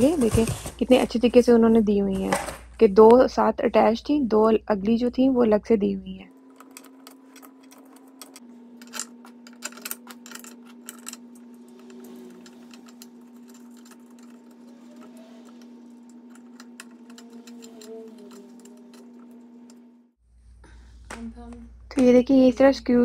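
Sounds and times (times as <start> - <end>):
steady low hum: 0.0 - 23.0
allen key clicking on bolts: 11.8 - 19.8.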